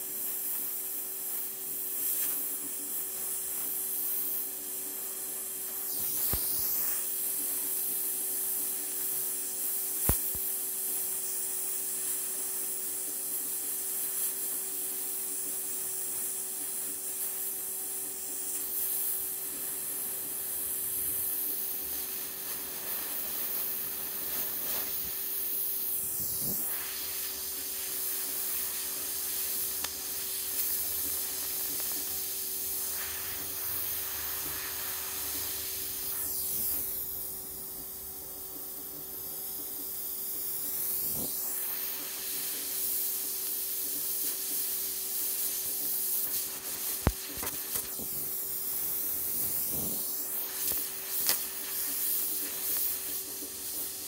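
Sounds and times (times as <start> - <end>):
torch flame hissing: 0.0 - 54.0
steady low hum: 15.0 - 54.0.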